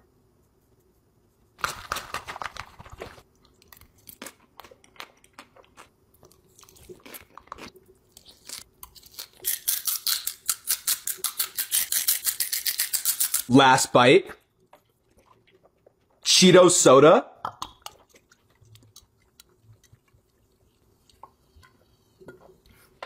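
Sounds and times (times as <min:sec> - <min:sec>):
person chewing crunchy food: 0:01.6 - 0:13.5, 0:14.6 - 0:16.2, 0:17.6 - 0:23.0.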